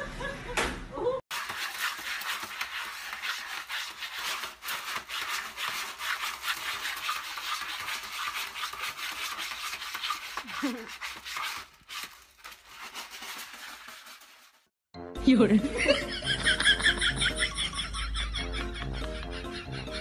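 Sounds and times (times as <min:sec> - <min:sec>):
cat scratching in litter tray: 0:01.3 - 0:14.7.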